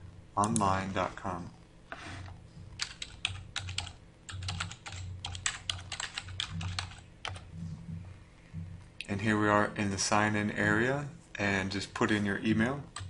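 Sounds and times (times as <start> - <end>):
computer keyboard typing: 2.8 - 7.5.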